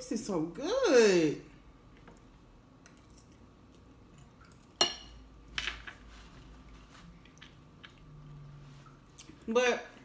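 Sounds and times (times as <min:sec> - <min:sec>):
fork clinking in ceramic bowl: 0:04.8 - 0:05.2.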